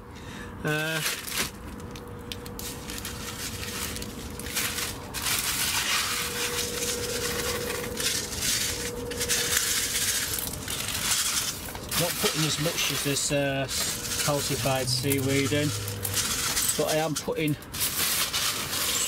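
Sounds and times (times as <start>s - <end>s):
granules pouring from plastic bag: 0.8s - 19.0s.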